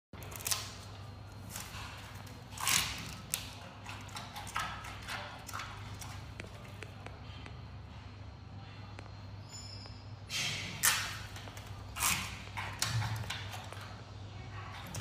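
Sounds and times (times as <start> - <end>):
panda chewing bamboo: 0.2 - 6.9.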